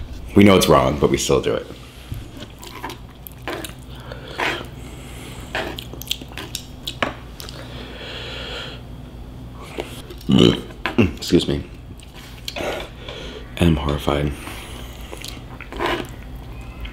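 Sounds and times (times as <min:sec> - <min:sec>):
wet chewing of noodles: 0:02.2 - 0:07.8, 0:14.4 - 0:16.9
mouth smacks and clicks: 0:05.6 - 0:07.6.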